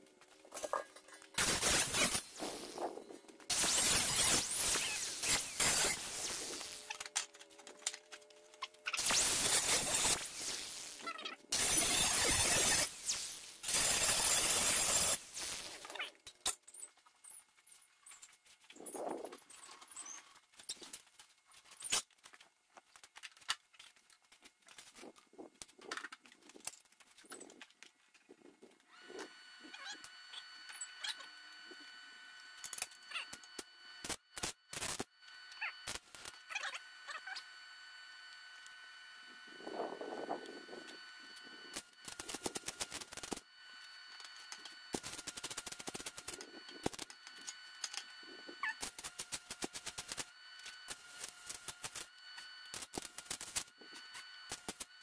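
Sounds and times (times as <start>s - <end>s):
faint steady hum: 0.0s - 55.0s
welding arc sizzling: 0.2s - 16.6s, 32.4s - 55.0s.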